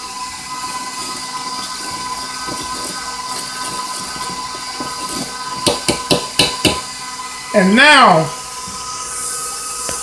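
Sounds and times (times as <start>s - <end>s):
whisk scratching through flour: 0.0s - 7.0s
stand mixer whirring: 0.0s - 10.0s.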